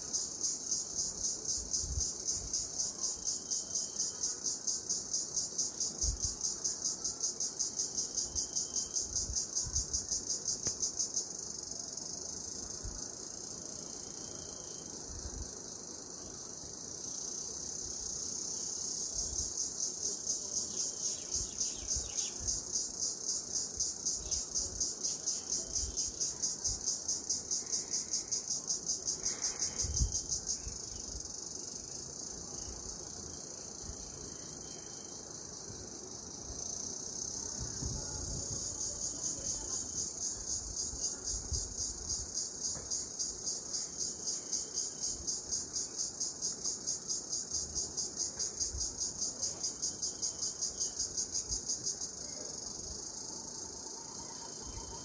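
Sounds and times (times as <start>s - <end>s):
insects chirping: 0.0s - 55.0s.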